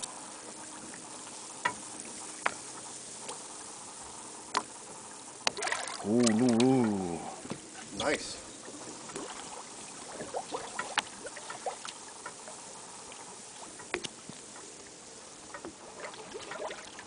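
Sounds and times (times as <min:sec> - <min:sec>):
water lapping against hull: 0:00.0 - 0:17.0.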